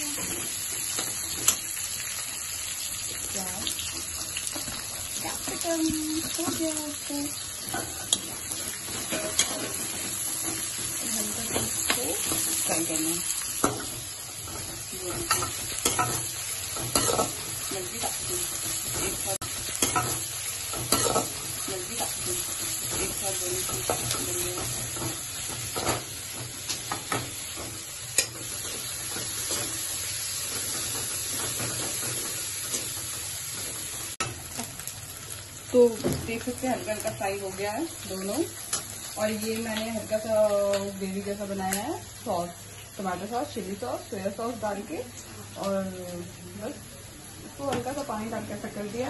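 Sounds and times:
vegetables sizzling in oil: 0.0s - 49.0s
metal spatula scraping pan: 7.8s - 12.8s.

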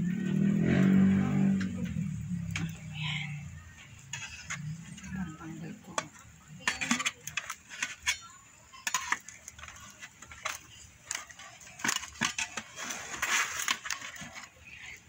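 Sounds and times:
foil trays clinking: 4.1s - 15.0s.

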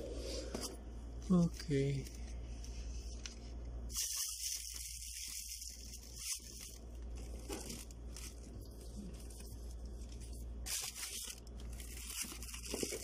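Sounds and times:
plastic packaging crinkling: 3.9s - 13.0s.

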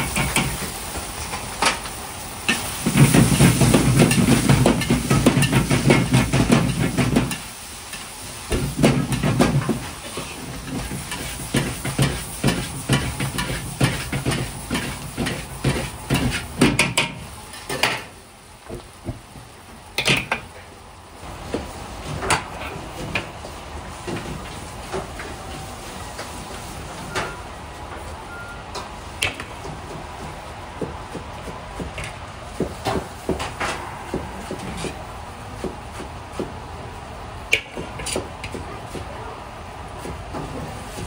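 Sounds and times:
food sizzling in a wok: 0.0s - 20.5s, 21.2s - 27.6s.

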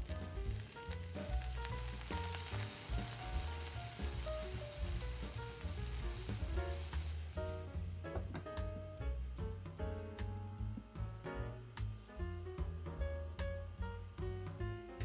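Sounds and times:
water sizzling in frying pan: 0.0s - 9.4s
background music with bass: 0.0s - 15.0s.

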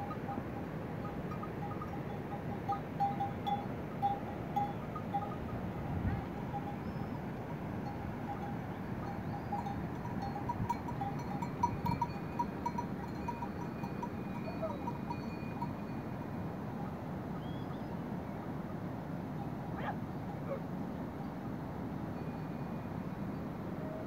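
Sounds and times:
mule bells jingling: 0.0s - 17.1s, 22.2s - 23.4s.

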